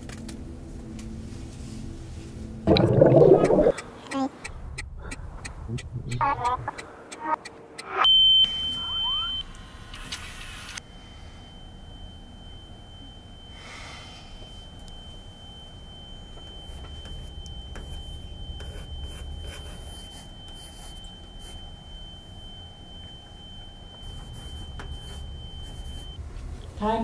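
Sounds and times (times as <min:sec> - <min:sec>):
high-pitched steady tone: 0:02.7 - 0:03.8, 0:05.7 - 0:09.6, 0:10.8 - 0:26.2
low rumble: 0:04.6 - 0:06.8.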